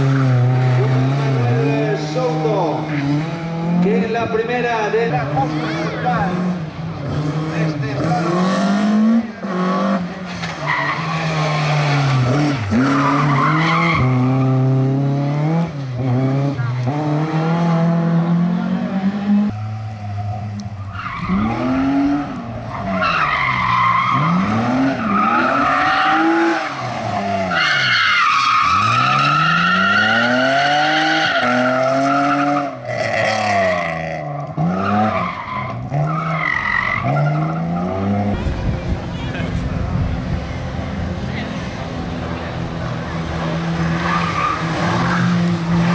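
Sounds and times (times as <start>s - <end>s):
rally car engine revving: 0.0s - 45.9s.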